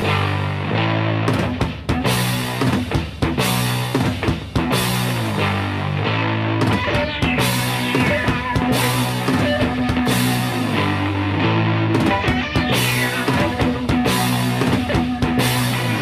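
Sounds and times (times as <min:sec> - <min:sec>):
rock drum beat: 0:00.0 - 0:16.0
held guitar notes: 0:04.6 - 0:16.0.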